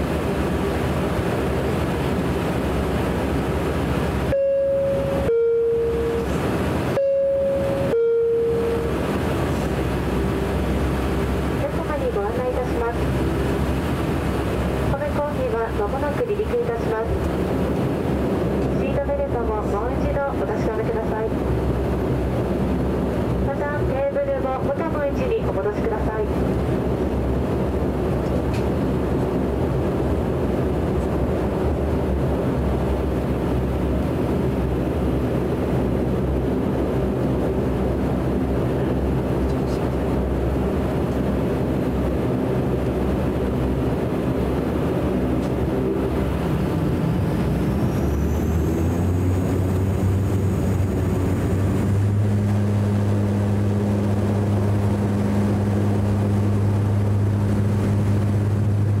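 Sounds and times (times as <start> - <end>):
high engine whine: 0.0 - 59.0
low propeller hum: 0.0 - 59.0
propeller engine drone: 0.0 - 59.0.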